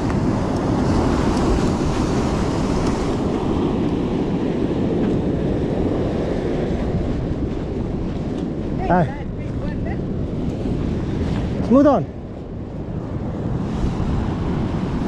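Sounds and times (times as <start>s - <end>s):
surf on rocky shore: 0.0s - 15.0s
wind buffeting microphone: 0.0s - 15.0s.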